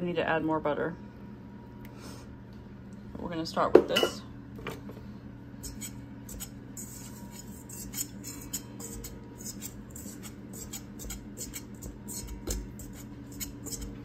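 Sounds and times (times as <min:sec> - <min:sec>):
steady low hum: 0:00.0 - 0:14.0
whisk scratching in metal bowl: 0:05.6 - 0:14.0.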